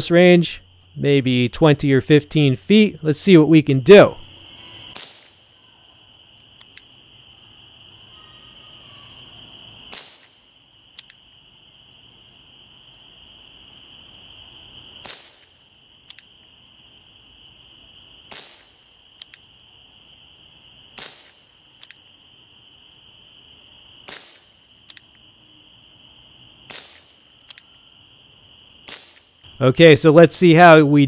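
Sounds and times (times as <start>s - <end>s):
air pistol shot pop: 4.9s - 5.3s, 9.9s - 10.4s, 24.1s - 24.4s
faint clicks: 6.4s - 6.9s, 11.0s - 11.2s, 16.1s - 16.3s, 19.2s - 19.5s, 21.8s - 22.0s, 24.8s - 25.2s, 27.0s - 27.7s.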